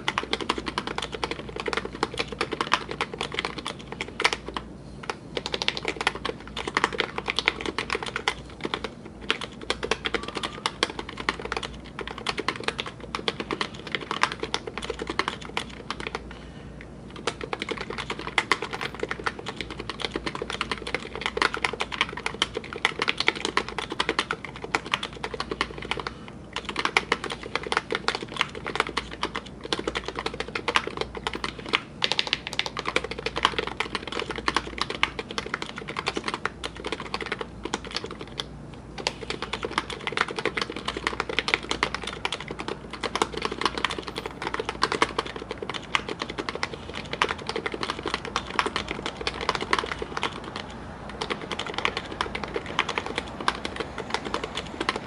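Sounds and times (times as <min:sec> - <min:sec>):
keyboard typing clacks: 0:00.0 - 0:16.2, 0:17.1 - 0:55.0.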